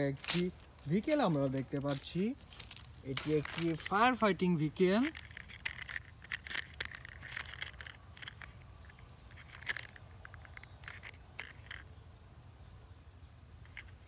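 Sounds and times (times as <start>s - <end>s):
plastic toy clicks and scrapes: 4.9s - 11.9s.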